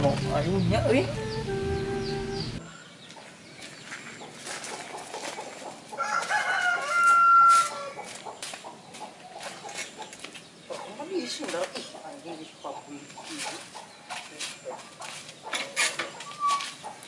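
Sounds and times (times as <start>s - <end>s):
rooster crowing: 6.0s - 8.0s.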